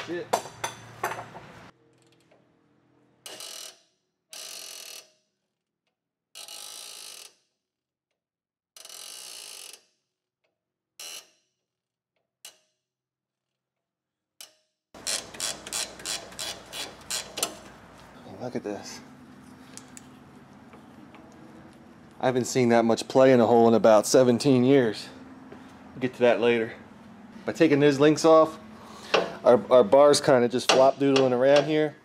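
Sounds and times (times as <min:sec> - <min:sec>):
ratchet wrench clicking: 0:15.0 - 0:17.5.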